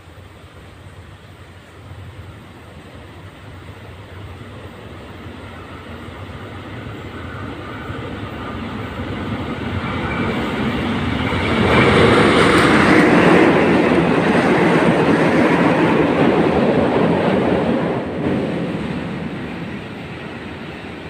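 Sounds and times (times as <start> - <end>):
diesel locomotive passing: 0.0 - 21.0
train wagons rolling: 2.0 - 21.0.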